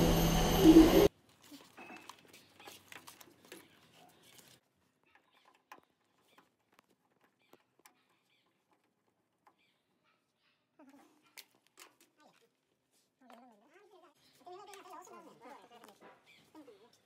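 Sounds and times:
faint clicks and rustling: 0:01.2 - 0:09.7.

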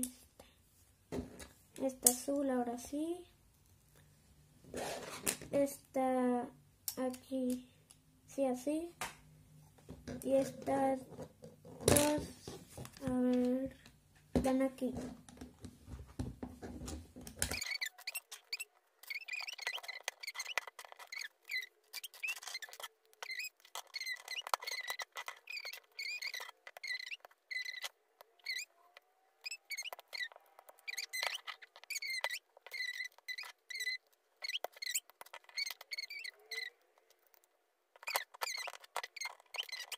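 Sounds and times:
high squeaky chirps: 0:17.5 - 0:39.9.

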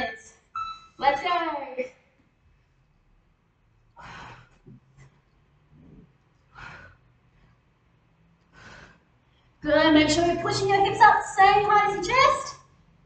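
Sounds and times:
soft breathing: 0:03.8 - 0:09.6
woman exhaling forcefully: 0:04.0 - 0:04.6, 0:06.5 - 0:07.0.

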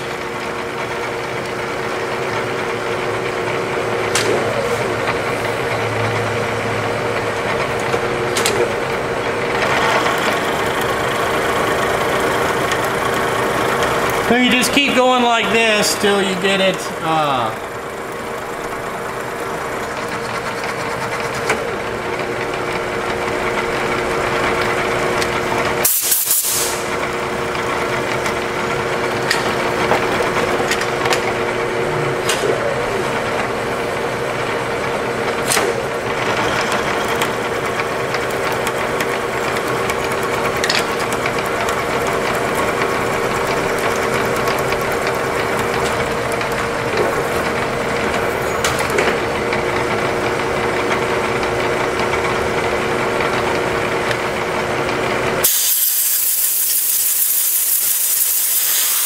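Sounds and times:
milling machine hum: 0:00.0 - 0:59.0
end mill grinding metal: 0:04.8 - 0:25.8, 0:33.0 - 0:55.5
short loud hiss: 0:55.5 - 0:59.0.

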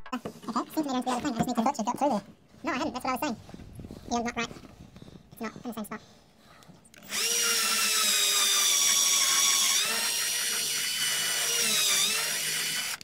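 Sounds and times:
power drill drilling into wood: 0:07.0 - 0:13.0.

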